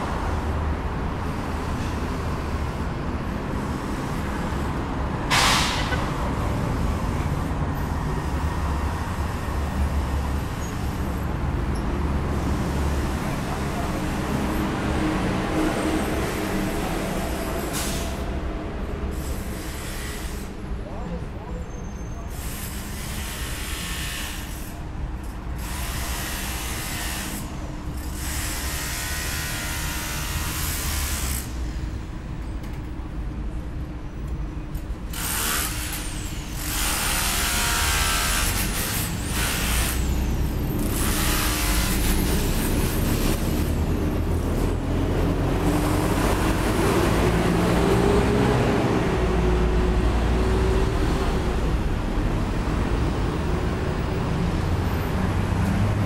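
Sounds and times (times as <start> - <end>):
road traffic rumble: 0.0 - 56.0
air brakes hissing: 5.3 - 6.1, 17.4 - 18.4
heavy vehicle engine passing: 40.1 - 56.0.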